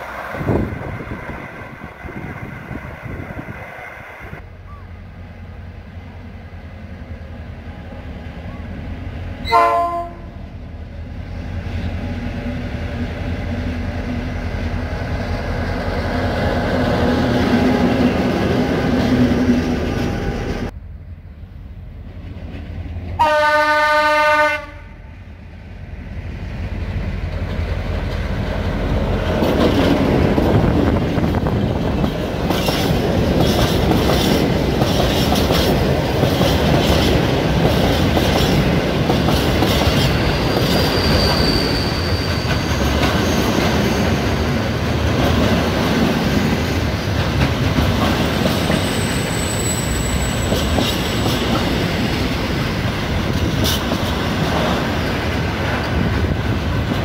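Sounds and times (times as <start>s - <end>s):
diesel locomotive engine: 0.0s - 57.0s
locomotive horn blast: 9.4s - 10.4s, 23.2s - 25.2s
train wheels clattering over rails: 26.6s - 57.0s.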